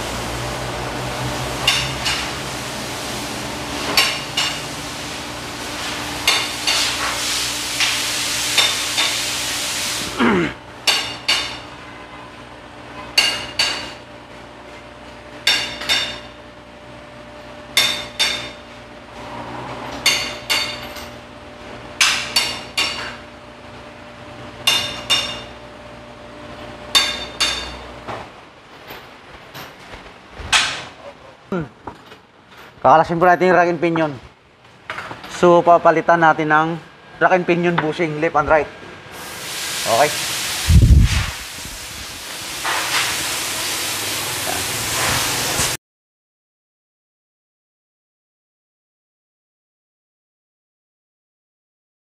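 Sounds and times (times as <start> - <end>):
car lift motor hissing: 0.0 - 10.2, 39.2 - 45.8
hammer striking metal: 1.6 - 2.3, 10.8 - 11.6, 13.2 - 14.0, 15.4 - 16.4, 17.8 - 18.6, 20.0 - 21.0, 22.0 - 23.2, 24.6 - 25.5, 26.9 - 27.8.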